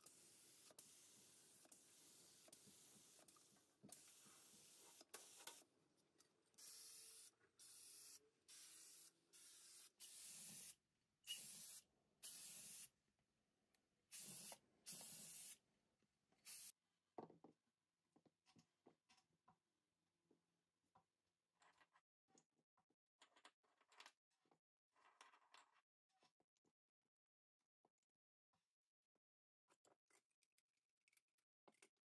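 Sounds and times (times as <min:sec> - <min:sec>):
spray paint hissing: 0:00.0 - 0:05.6, 0:06.6 - 0:12.9, 0:14.1 - 0:15.6, 0:16.4 - 0:16.7.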